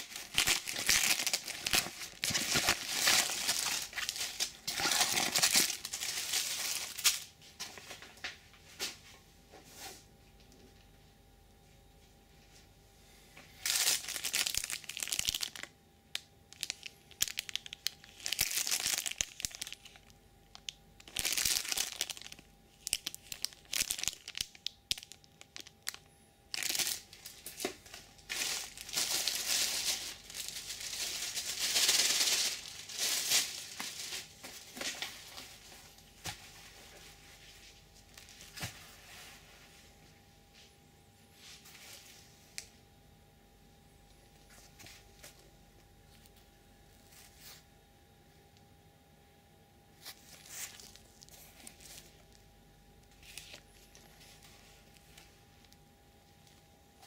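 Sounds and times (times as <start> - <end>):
plastic bags crinkling: 0.0 - 8.0, 13.6 - 39.2, 50.0 - 55.8.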